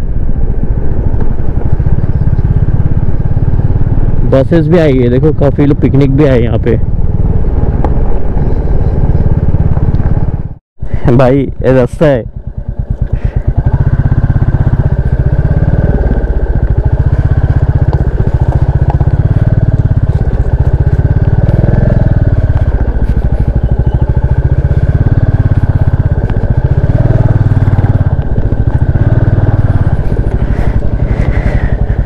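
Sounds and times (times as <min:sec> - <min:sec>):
motorcycle engine running: 0:00.0 - 0:32.0.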